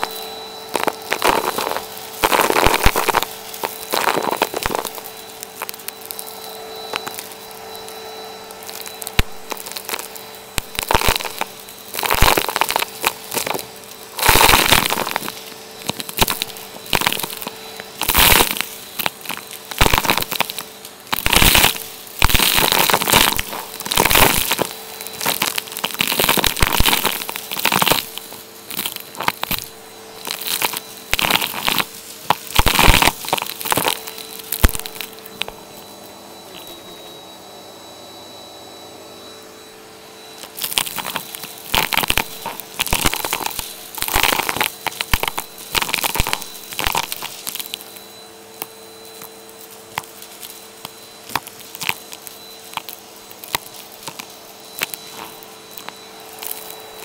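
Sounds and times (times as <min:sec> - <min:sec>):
debris crunching up vacuum hose: 0:00.0 - 0:37.4, 0:39.9 - 0:57.0
vacuum cleaner motor hum: 0:00.0 - 0:57.0.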